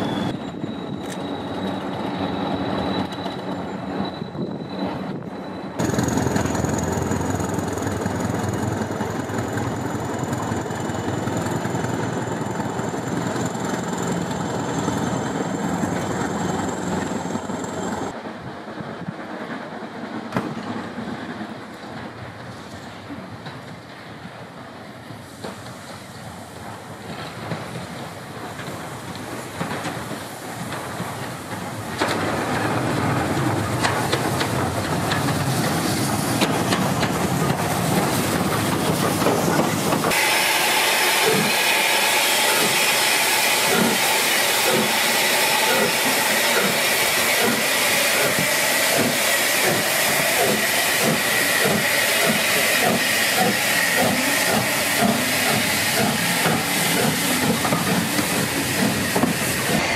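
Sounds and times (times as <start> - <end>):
rhythmic locomotive exhaust beat: 0.0 - 18.2, 25.4 - 59.9
steam hissing from locomotive: 24.0 - 59.9.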